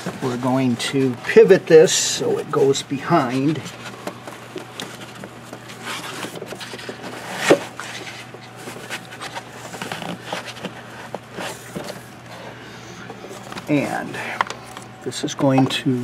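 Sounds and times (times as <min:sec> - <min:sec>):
rubber hose rubbing and scraping: 0:02.6 - 0:12.4.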